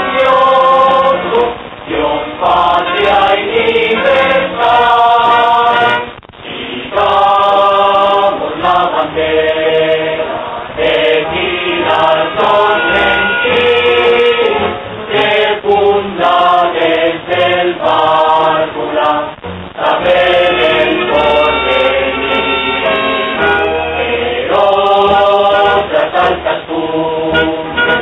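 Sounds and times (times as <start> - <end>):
choir singing: 0.0 - 28.0
instrumental backing: 19.2 - 26.6, 27.2 - 28.0.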